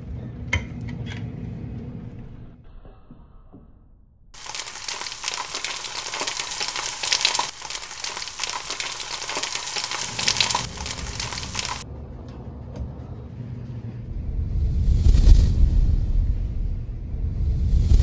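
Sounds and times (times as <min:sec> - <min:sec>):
dense crackling with fine clicks: 0:04.4 - 0:11.8
low rumble: 0:14.0 - 0:18.0.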